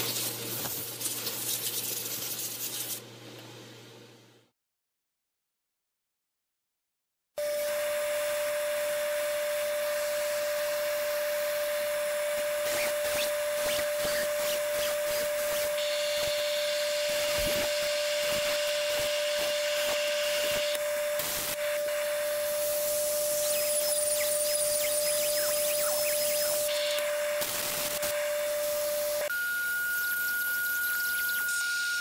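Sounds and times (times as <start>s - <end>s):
vacuum whining: 7.4s - 32.0s
drill running: 8.4s - 29.3s.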